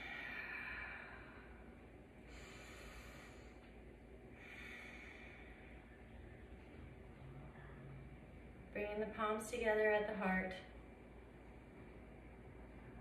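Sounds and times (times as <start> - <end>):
woman breathing softly: 0.0 - 6.4.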